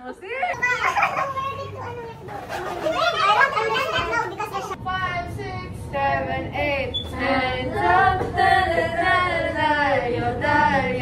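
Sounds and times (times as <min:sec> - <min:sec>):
women singing: 0:04.8 - 0:11.0.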